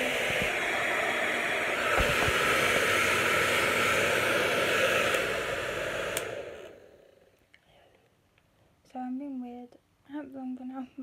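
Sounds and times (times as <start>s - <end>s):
hair dryer blowing: 0.0s - 7.3s
hair dryer switch click: 0.1s - 0.9s, 1.7s - 6.8s.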